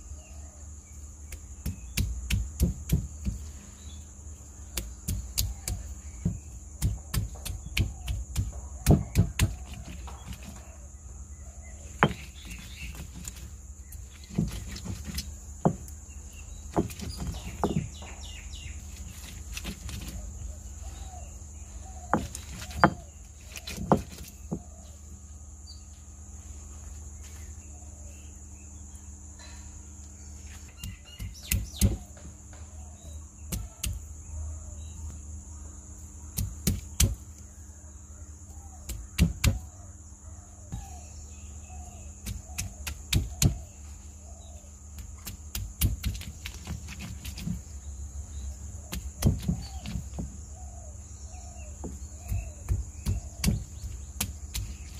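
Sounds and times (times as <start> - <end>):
faint bird chirps: 0.0 - 46.7, 47.3 - 54.9
stone-on-stone knocks: 22.1 - 23.0
stone roller grinding: 22.1 - 24.4.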